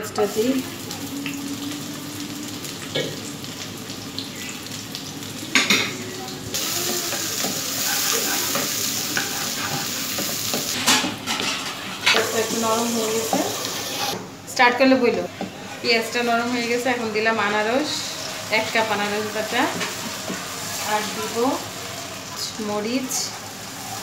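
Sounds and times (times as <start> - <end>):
onion sizzling in oil: 0.0 - 24.0
spatula scraping pan: 6.6 - 14.2, 17.0 - 24.0.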